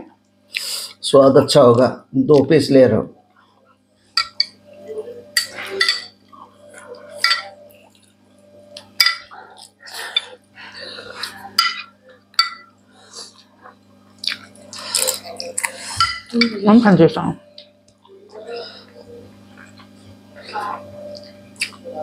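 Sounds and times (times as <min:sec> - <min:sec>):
metal spoon clinking glass: 0:05.4 - 0:06.2, 0:07.2 - 0:07.6, 0:11.6 - 0:12.7
wet chewing and lip smacks: 0:14.2 - 0:15.8.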